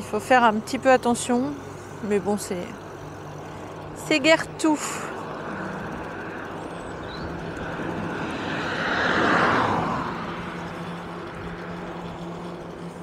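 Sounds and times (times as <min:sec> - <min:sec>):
steady low hum: 0:00.0 - 0:13.0
vehicle passing: 0:00.0 - 0:13.0.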